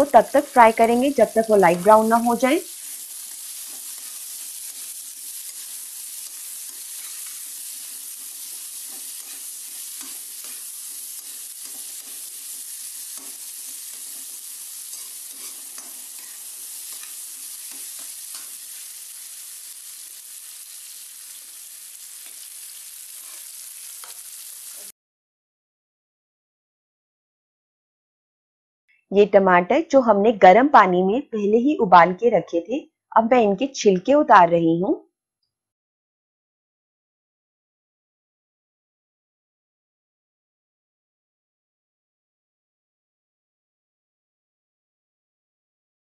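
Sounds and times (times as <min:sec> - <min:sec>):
onions sizzling in oil: 0:00.0 - 0:24.9
spatula scraping and clinking on pan: 0:02.6 - 0:24.9.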